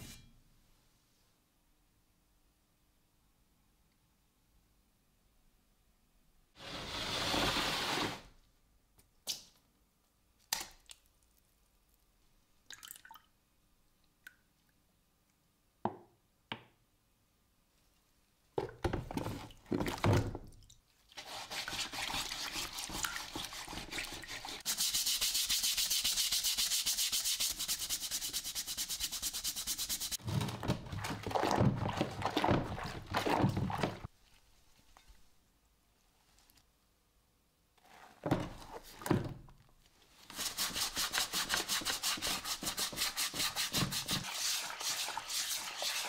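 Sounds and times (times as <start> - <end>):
water sloshing and dripping: 12.6 - 13.3, 30.3 - 34.1
brush scrubbing metal in water: 21.1 - 30.2, 40.3 - 46.0.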